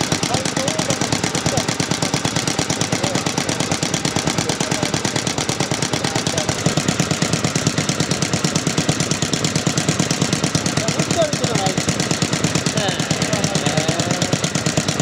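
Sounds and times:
stationary engine running: 0.0s - 15.0s.

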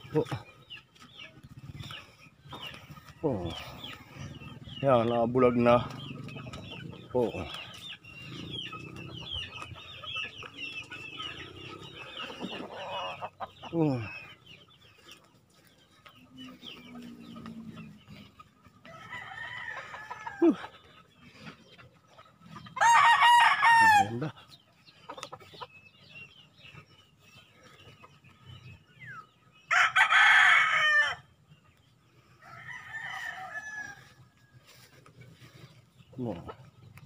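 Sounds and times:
roosters crowing: 0.0s - 25.7s, 26.4s - 37.0s
faint distant rooster crows: 16.4s - 20.7s, 32.4s - 35.5s.

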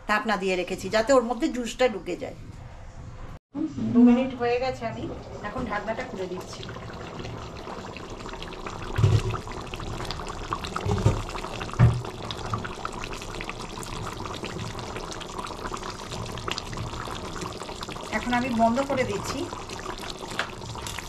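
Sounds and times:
curry bubbling in pan: 5.4s - 21.0s.

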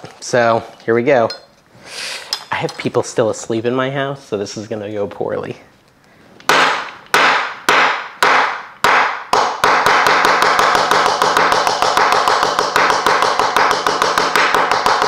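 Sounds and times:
meat mallet pounding seeds in bag: 6.6s - 15.0s.

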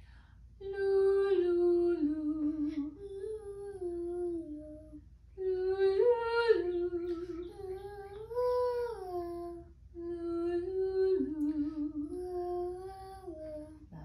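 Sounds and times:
girl singing wordless phrases: 0.6s - 14.0s
woman singing wordless phrases: 0.6s - 14.0s.

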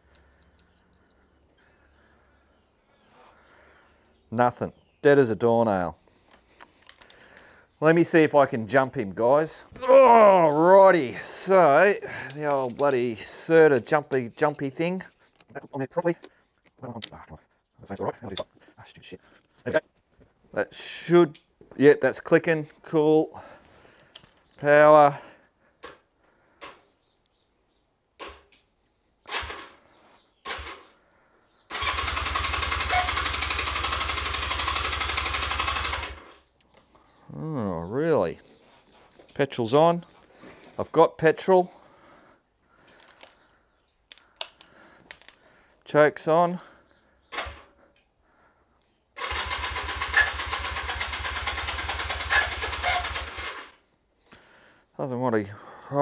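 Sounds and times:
motorcycle engine cranking: 30.4s - 30.9s, 31.7s - 36.5s, 49.2s - 53.8s.

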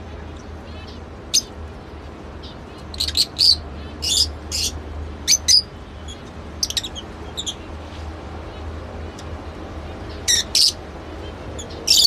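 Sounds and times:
lovebirds chirping: 2.4s - 9.3s, 9.9s - 12.0s.

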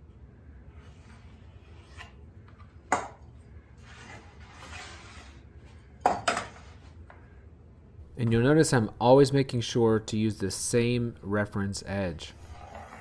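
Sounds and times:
metal scraping across wood: 3.8s - 5.4s, 12.4s - 13.0s.

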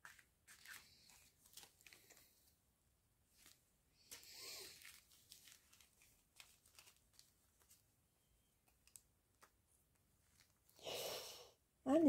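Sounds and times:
plastic bags clicking and crinkling: 3.4s - 7.8s, 8.7s - 9.6s.

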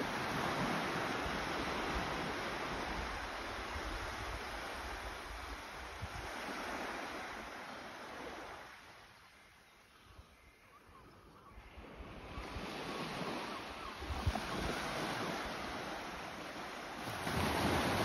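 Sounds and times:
waves washing up a beach: 0.0s - 10.4s, 11.6s - 18.0s
wind on microphone: 11.9s - 16.0s.

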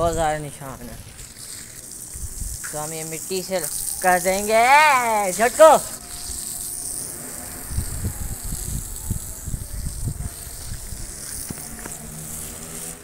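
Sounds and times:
water running onto concrete: 0.0s - 13.0s
wind rumble on microphone: 2.1s - 2.8s, 7.4s - 12.5s.

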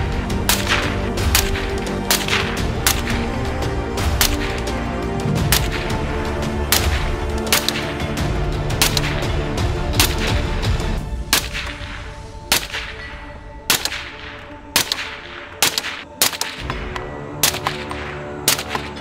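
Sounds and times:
background music: 0.0s - 19.0s
suppressed rifle shots: 0.5s - 3.2s, 6.7s - 8.0s, 11.3s - 13.1s, 13.7s - 19.0s.

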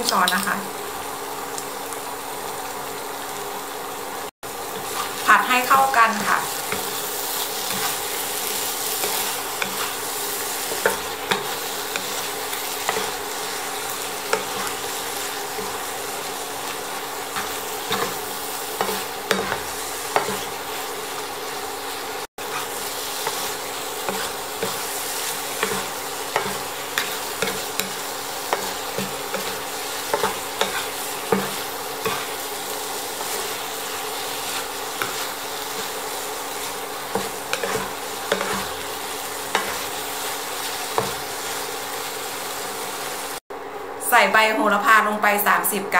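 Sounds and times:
food sizzling in frying pan: 0.0s - 43.5s
wooden spatula scraping pan: 6.2s - 20.8s, 22.4s - 32.4s, 33.2s - 40.0s.

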